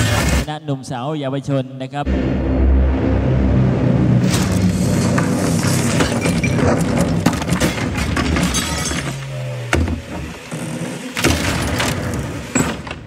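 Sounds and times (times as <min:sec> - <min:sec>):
film music: 0:02.1 - 0:07.2
things breaking and crashing: 0:03.1 - 0:13.0
debris clattering: 0:04.2 - 0:13.0
glass shattering: 0:05.6 - 0:09.5.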